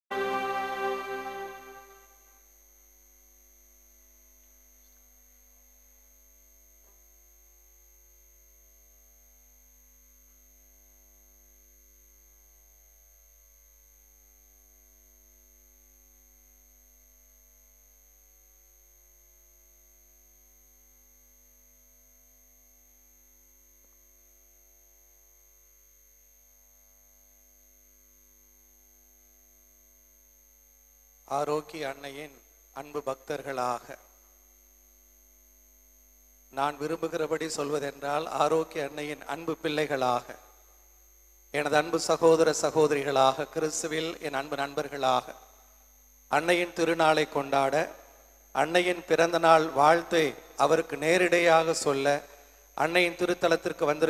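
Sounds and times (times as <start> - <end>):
music: 0.0 - 2.3
faint electrical mains hum: 0.1 - 54.0.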